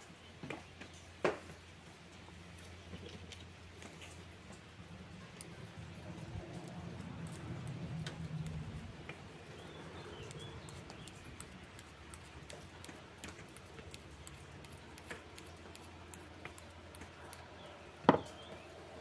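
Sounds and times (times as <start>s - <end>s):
magnet scraping on needle: 5.4s - 8.8s, 10.1s - 17.4s.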